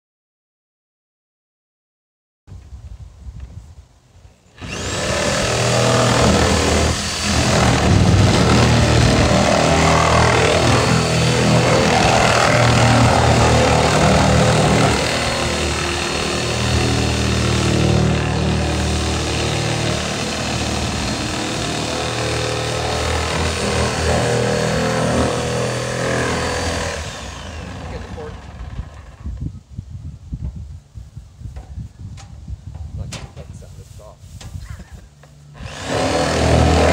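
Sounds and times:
power saw cutting plastic: 0:04.5 - 0:29.4, 0:35.5 - 0:36.9.

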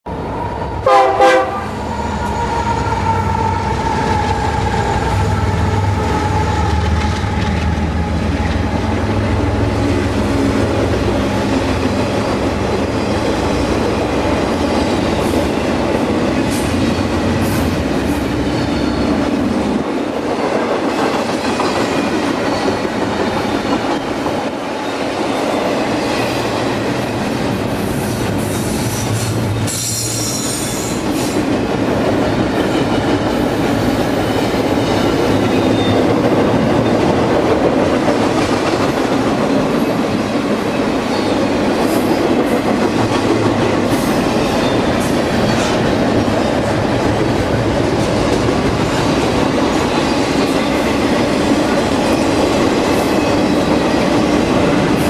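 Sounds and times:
freight train rumble and clatter: 0:00.1 - 0:55.0
train horn blast: 0:00.8 - 0:02.4
train wheel squeals: 0:16.5 - 0:19.3, 0:21.4 - 0:26.6, 0:27.8 - 0:31.5, 0:32.5 - 0:37.2, 0:39.5 - 0:42.2, 0:43.9 - 0:46.7.

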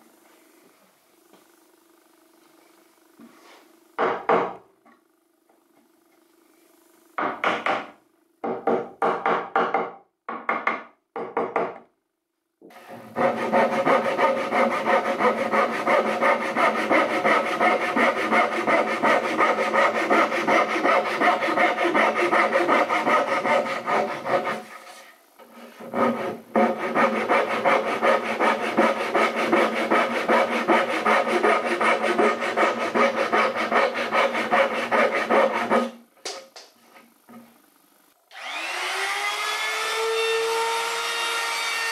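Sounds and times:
hand saw cutting wood: 0:12.8 - 0:36.0.

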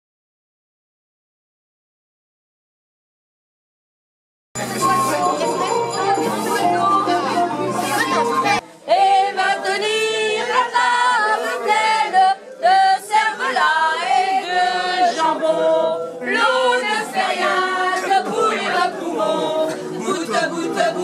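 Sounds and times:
women singing unaccompanied: 0:04.9 - 0:21.0.

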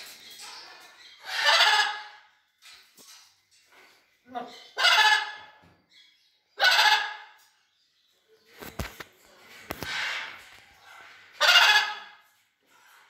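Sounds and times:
macaws squawking: 0:11.4 - 0:12.1.

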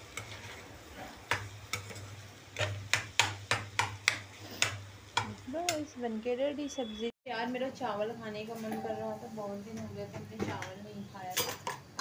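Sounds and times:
spoon clinking and scraping pot: 0:00.0 - 0:05.4.

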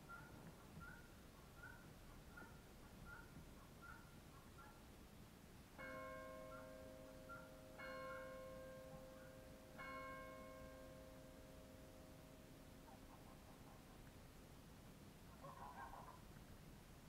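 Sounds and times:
faint bell tolling: 0:05.8 - 0:12.8.

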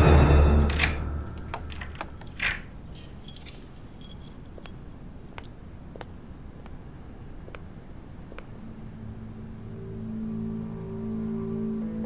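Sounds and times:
key rattling in metal lock: 0:00.6 - 0:04.8
key and latch clicks: 0:00.6 - 0:05.6.

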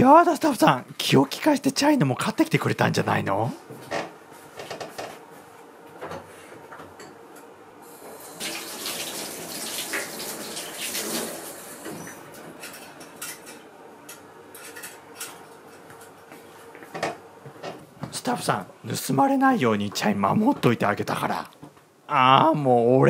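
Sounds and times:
small knocks and clatters: 0:16.7 - 0:18.2.

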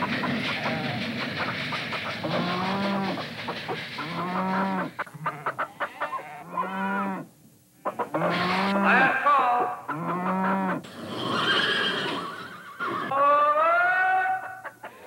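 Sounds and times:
toy train rolling clatter: 0:00.0 - 0:04.8, 0:10.9 - 0:13.1.

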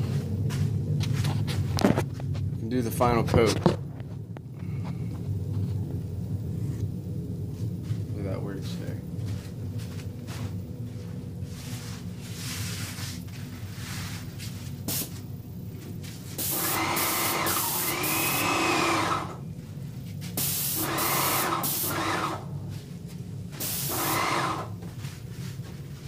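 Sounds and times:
paint sprayer humming: 0:09.2 - 0:26.0
paint sprayer hissing and whining: 0:11.5 - 0:15.3, 0:16.0 - 0:19.4, 0:20.2 - 0:22.8, 0:23.5 - 0:25.1.

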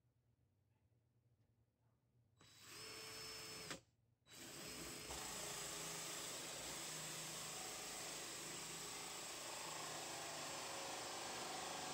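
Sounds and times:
cordless drill boring through wood: 0:02.4 - 0:11.9.

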